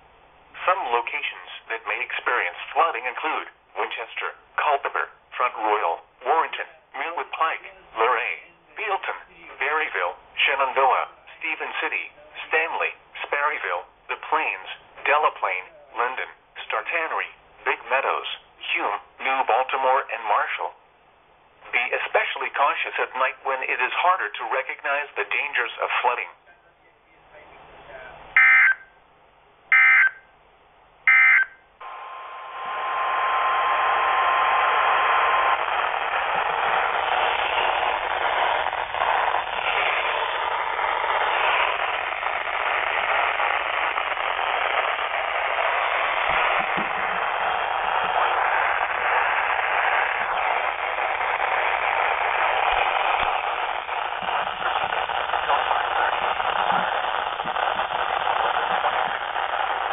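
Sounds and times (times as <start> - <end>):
static hiss: 0.0 - 26.7, 27.3 - 59.9
buzzy data bursts: 28.3 - 28.9, 29.7 - 30.2, 31.1 - 59.9.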